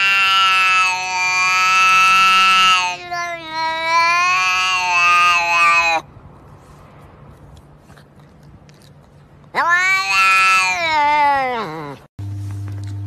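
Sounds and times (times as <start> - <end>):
cat meowing: 0.0 - 6.1, 9.5 - 12.1.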